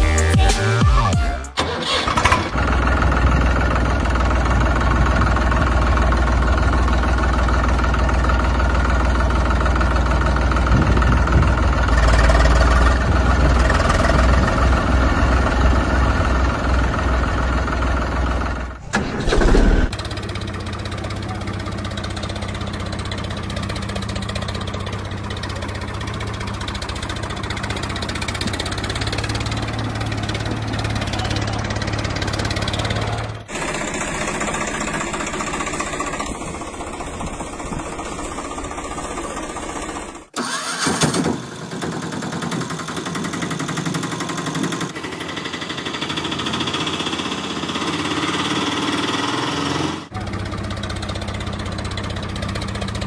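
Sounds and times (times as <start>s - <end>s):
tractor engine running: 0.0s - 53.0s.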